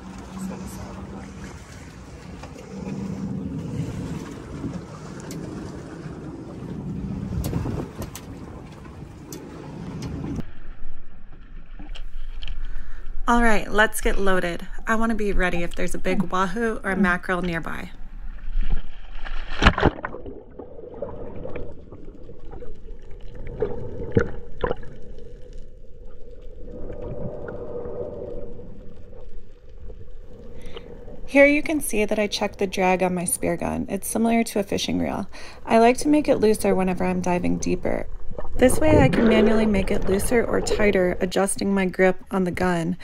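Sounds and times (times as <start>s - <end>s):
motorboat engine rumble: 0.0s - 10.5s
water rushing past hull: 0.0s - 11.1s, 18.4s - 34.4s, 35.0s - 43.0s
underwater hum: 0.0s - 13.4s, 14.7s - 43.0s
wind buffeting microphone: 2.6s - 10.4s
splash into water: 19.2s - 22.7s.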